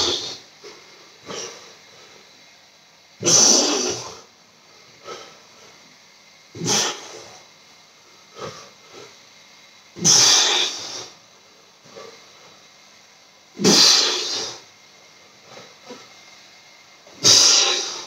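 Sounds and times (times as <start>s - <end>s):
faint breaths: 3.8s - 6.0s, 6.7s - 9.4s, 10.0s - 12.7s.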